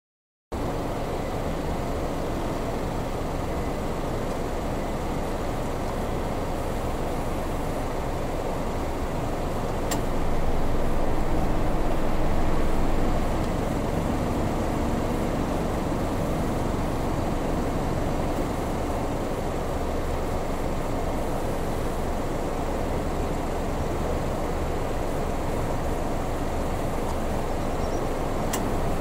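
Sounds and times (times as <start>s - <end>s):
distant road traffic rumble: 0.6s - 29.0s
faint click: 9.9s - 10.1s, 28.5s - 28.7s.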